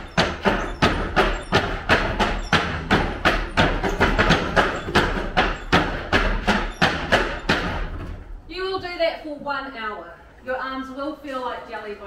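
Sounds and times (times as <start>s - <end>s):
wooden gate knocking against stops: 0.0s - 8.0s.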